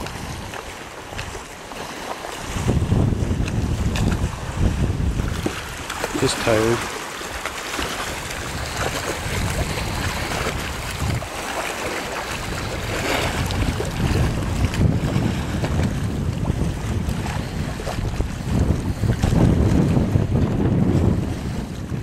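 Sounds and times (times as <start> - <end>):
choppy river water: 0.0 - 22.0
wind buffeting microphone: 0.0 - 22.0.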